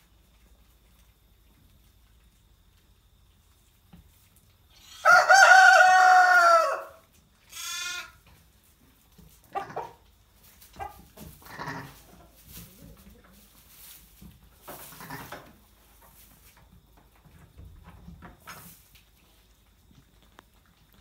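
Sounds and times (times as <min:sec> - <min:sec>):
sheep bleating: 0:07.5 - 0:08.2.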